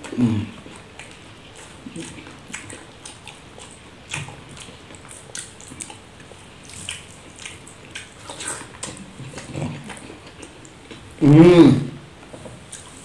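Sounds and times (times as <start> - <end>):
fingers mixing wet rice: 0.0 - 11.0
person chewing food: 0.0 - 11.2.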